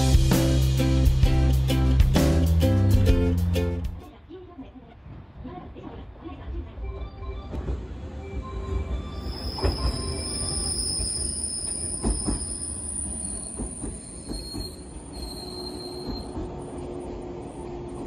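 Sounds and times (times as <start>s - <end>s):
low steady train hum: 0.0s - 18.0s
train brakes squealing: 8.3s - 16.8s.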